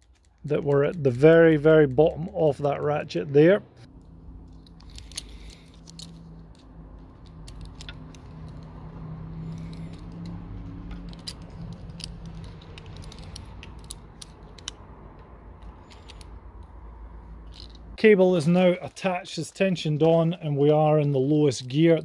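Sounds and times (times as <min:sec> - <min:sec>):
small metallic clicks and taps: 0:09.5 - 0:16.8.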